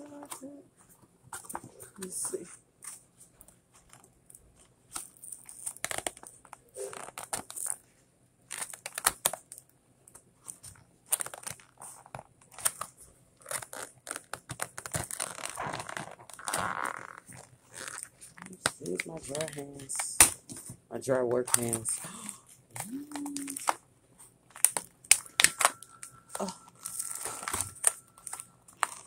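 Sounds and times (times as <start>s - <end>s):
plastic packaging crinkling: 8.5s - 9.6s, 10.4s - 20.6s, 21.5s - 23.8s, 24.5s - 29.0s.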